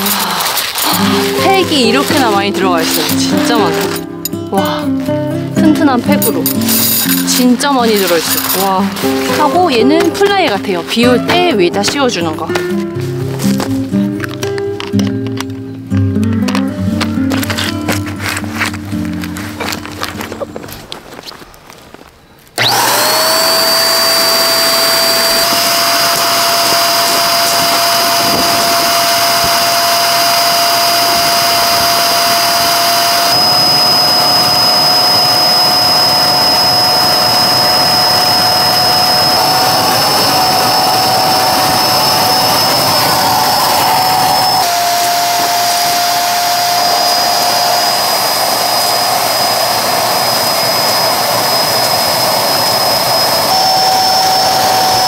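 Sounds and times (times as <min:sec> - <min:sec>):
electric air pump whining: 0:00.0 - 0:15.6, 0:16.4 - 0:21.7, 0:22.5 - 0:55.0
rushing air: 0:25.1 - 0:55.0.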